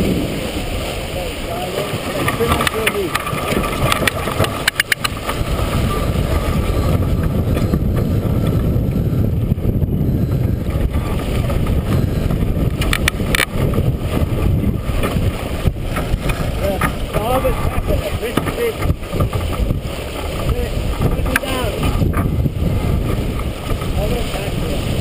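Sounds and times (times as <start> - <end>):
water rushing along hull: 0.0 - 25.0
wind buffeting microphone: 0.0 - 25.0
sharp clicks: 2.3 - 5.4, 12.7 - 13.6.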